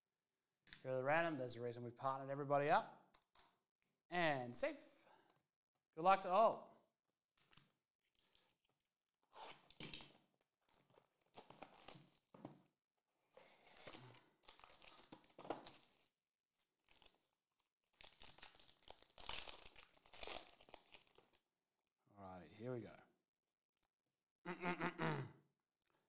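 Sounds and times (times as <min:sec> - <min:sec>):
packaging tearing: 0:10.9 - 0:12.2, 0:13.6 - 0:16.1, 0:18.0 - 0:21.4
foil wrapper crinkling: 0:13.6 - 0:16.1, 0:17.9 - 0:21.4.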